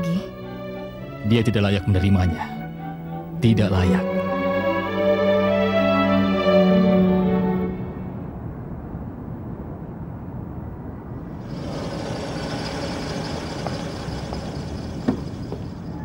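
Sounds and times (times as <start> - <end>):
traffic rumble: 7.8 - 16.0.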